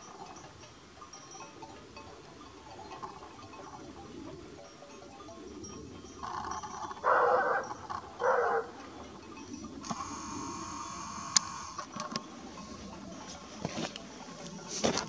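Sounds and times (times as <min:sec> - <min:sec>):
faint steady tone: 0:00.0 - 0:15.0
dog barking: 0:07.0 - 0:08.8.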